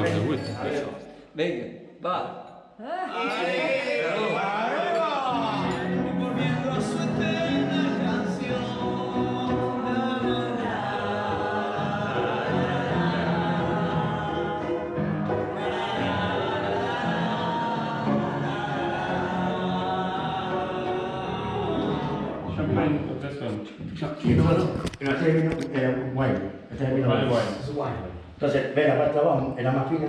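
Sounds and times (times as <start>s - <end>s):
voices singing together: 2.9s - 24.8s.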